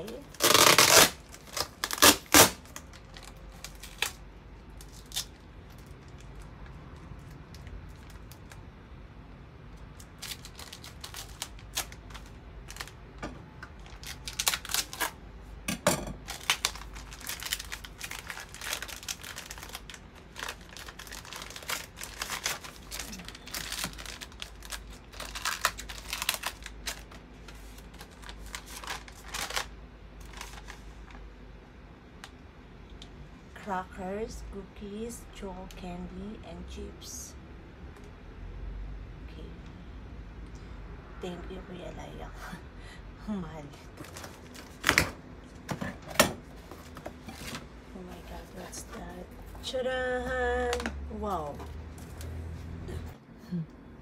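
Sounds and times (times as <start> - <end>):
packaging tearing and crinkling: 0.0 - 6.5, 10.0 - 13.0, 13.7 - 15.2, 16.2 - 31.2, 44.0 - 45.1.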